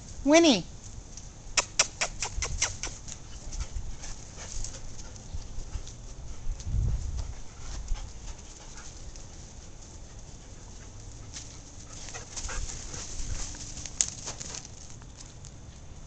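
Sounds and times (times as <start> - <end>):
dogs scuffling paws and thumps: 3.0 - 15.5.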